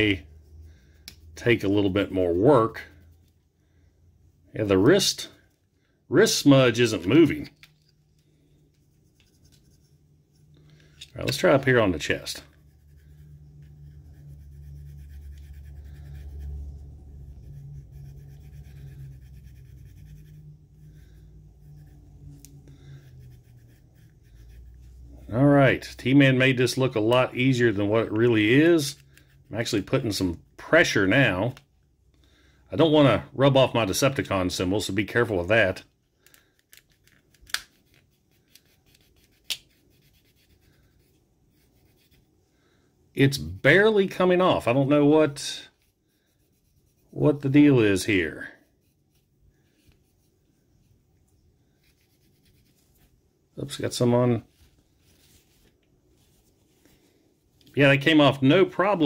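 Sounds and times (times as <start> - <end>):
low steady hum: 0.0 - 59.0
cloth rubbing on plastic: 54.4 - 57.2.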